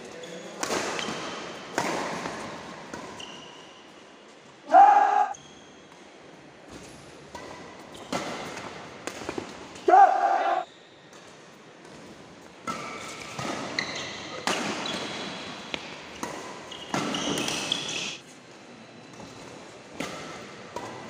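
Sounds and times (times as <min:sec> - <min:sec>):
sneakers squeaking on floor: 0:00.2 - 0:04.0, 0:12.7 - 0:18.2
rackets hitting shuttlecock: 0:12.6 - 0:17.9.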